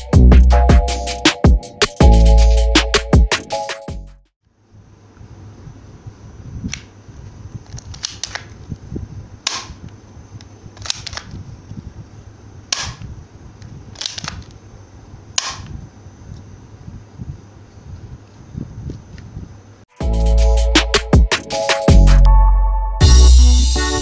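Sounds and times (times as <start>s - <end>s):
toy pistol plastic snaps: 7.7s - 8.6s, 9.5s - 9.8s, 10.8s - 11.4s, 12.7s - 13.1s, 13.9s - 14.6s, 15.4s - 15.8s.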